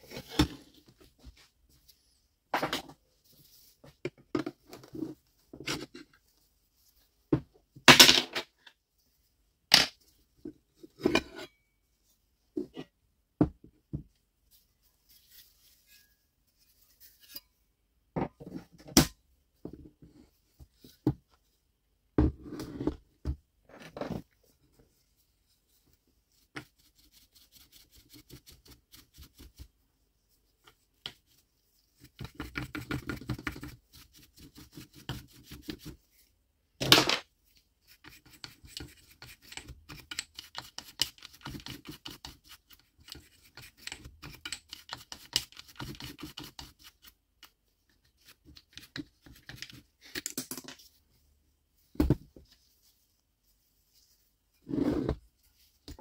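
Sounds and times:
small brush scrubbing: 0:14.4 - 0:17.6, 0:24.2 - 0:36.4, 0:37.4 - 0:50.1, 0:50.9 - 0:56.0.

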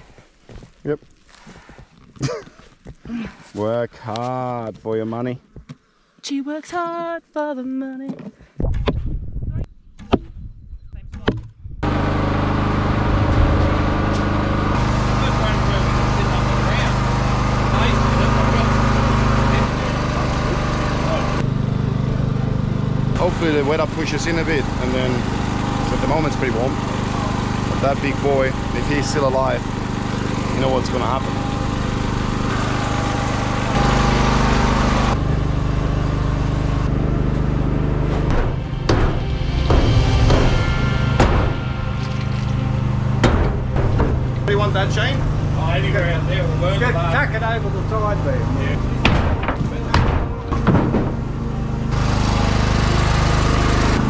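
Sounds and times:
engine running steadily: 0:11.8 - 0:54.0
sharp knocks: 0:38.2 - 0:44.5, 0:49.0 - 0:51.4.

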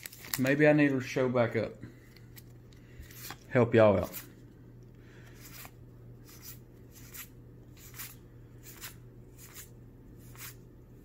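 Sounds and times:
cards swishing against cards: 0:03.0 - 0:04.4, 0:05.3 - 0:10.6.

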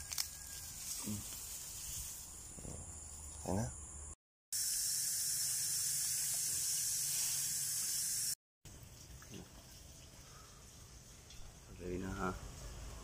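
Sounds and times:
water from hose splashing: 0:04.6 - 0:12.7.

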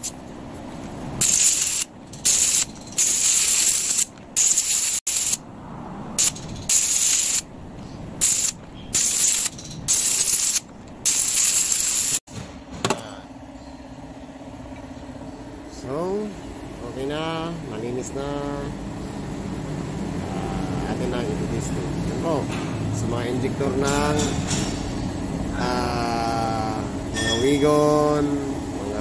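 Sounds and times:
spray gun hissing bursts: 0:01.2 - 0:05.4, 0:08.2 - 0:12.2.

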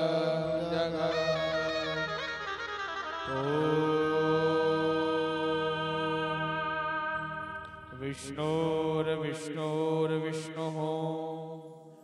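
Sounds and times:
person chanting a long note: 0:03.2 - 0:09.2.

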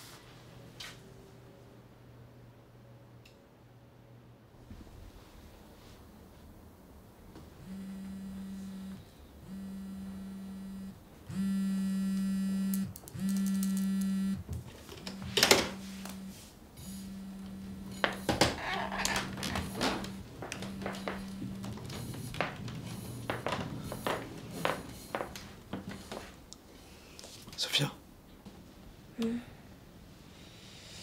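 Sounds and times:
mobile phone vibrating: 0:07.6 - 0:14.5, 0:15.1 - 0:25.2
wheelchair rolling on wooden floor: 0:17.4 - 0:26.5.

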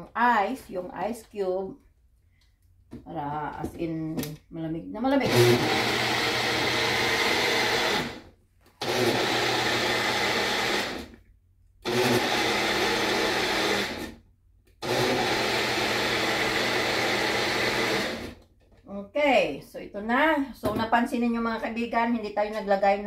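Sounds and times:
blender running: 0:05.2 - 0:11.2, 0:11.8 - 0:14.2, 0:14.8 - 0:18.4.

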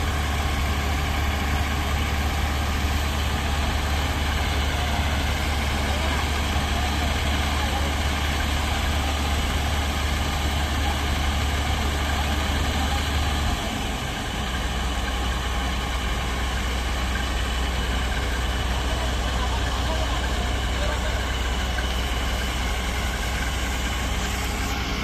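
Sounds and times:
diesel engine humming: 0:00.0 - 0:25.0.

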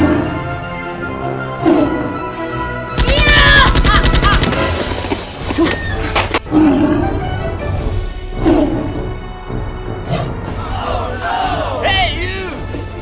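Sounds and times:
automatic gunfire: 0:03.0 - 0:04.8.

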